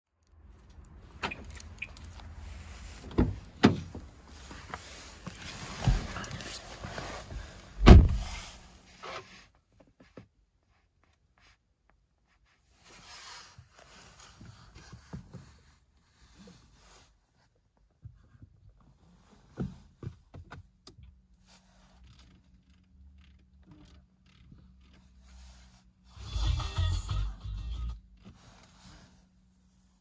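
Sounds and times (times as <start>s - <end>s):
faint handling sounds: 0.2s - 20.3s
car door opening: 1.2s - 2.1s, 3.0s - 4.0s, 7.8s - 8.4s
car door shutting with thump: 7.8s - 8.4s.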